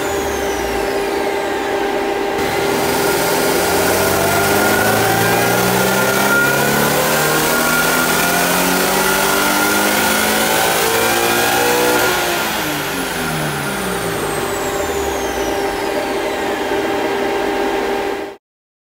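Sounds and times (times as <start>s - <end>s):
high whine falling in pitch: 0.0s - 16.8s
engine revving at full throttle: 2.3s - 16.7s.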